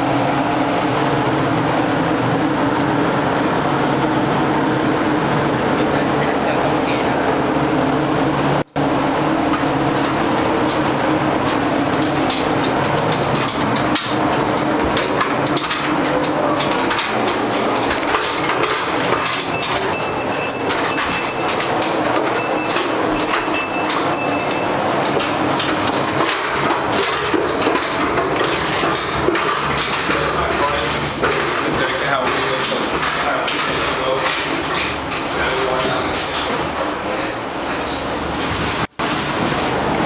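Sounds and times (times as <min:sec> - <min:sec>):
steady ship interior din: 0:00.0 - 0:40.0
high-pitched beeping tone: 0:19.2 - 0:21.6, 0:22.4 - 0:24.8.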